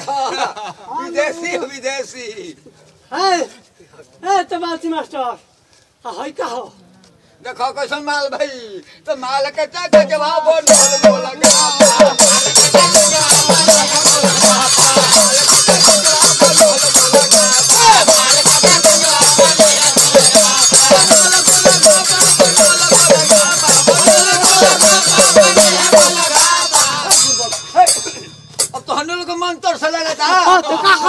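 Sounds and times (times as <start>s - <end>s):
hourglass drum beat: 9.9s - 29.0s.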